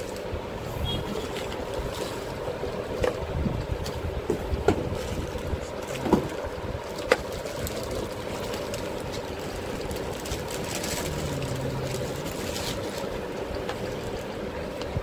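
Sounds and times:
plastic packaging crinkling: 4.8 - 14.8
low droning rumble: 7.6 - 14.4.

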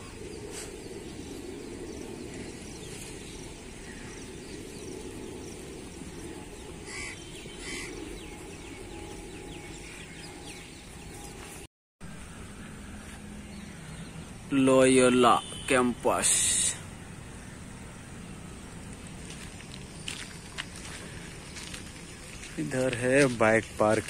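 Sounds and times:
steady low rumble: 0.0 - 14.5
short bird calls: 6.8 - 8.2.

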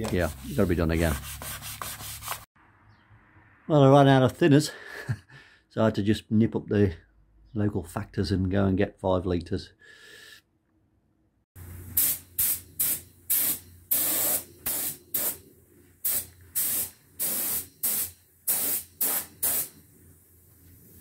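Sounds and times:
paint spray gun hissing: 11.6 - 15.4, 16.0 - 21.0.

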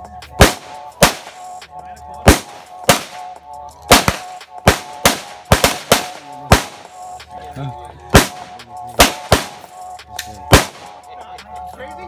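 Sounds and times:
faint background music: 0.0 - 12.0
handgun shots: 0.4 - 1.4, 2.3 - 3.3, 3.9 - 6.9, 8.2 - 9.7, 10.5 - 10.9.

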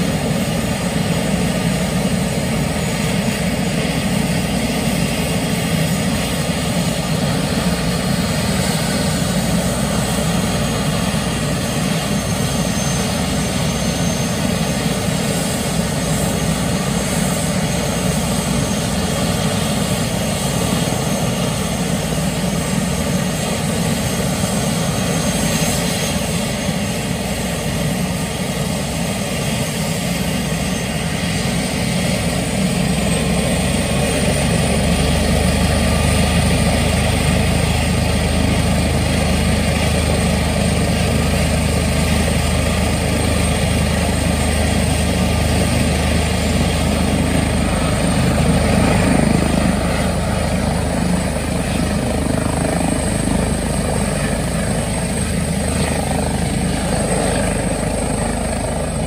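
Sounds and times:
helicopter rotor beat: 0.0 - 59.0
helicopter turbine whine: 0.0 - 59.0.

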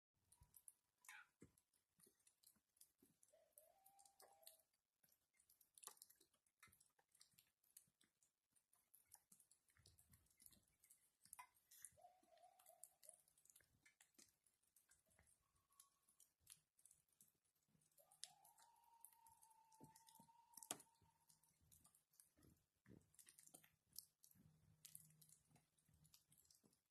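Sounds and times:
faint clicks: 0.3 - 26.9
distant coyote-like howls: 3.2 - 4.7, 11.9 - 13.2, 18.0 - 21.6.

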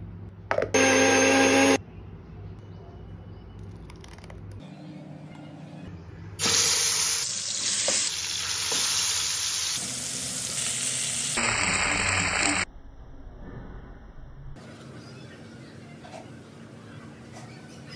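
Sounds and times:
chicken sizzling in hot oil: 6.4 - 12.7.

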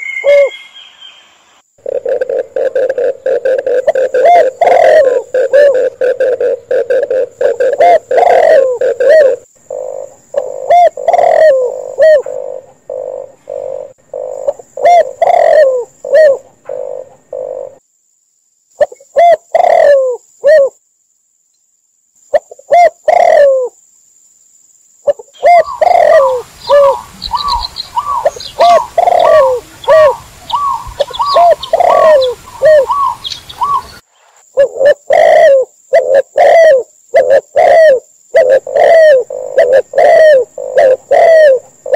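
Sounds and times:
doves cooing: 0.0 - 0.6, 1.8 - 17.8, 18.8 - 20.7, 22.4 - 23.7, 25.1 - 34.0, 34.6 - 41.9
quicker higher coos: 34.6 - 41.9.

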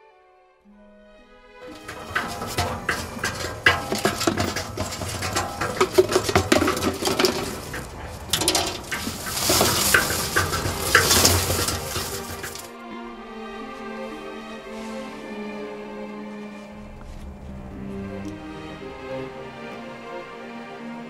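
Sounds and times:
cement mixer drum turning: 1.6 - 12.8
corn cobs clattering in drum: 1.6 - 12.8
harsh scraping rush: 1.6 - 12.8.

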